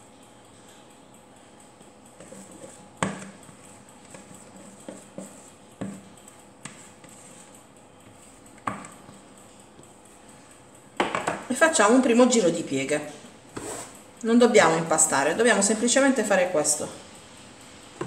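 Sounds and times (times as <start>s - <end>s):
spatula scraping plastic bowl: 2.2s - 6.0s, 6.6s - 9.1s, 13.5s - 14.0s.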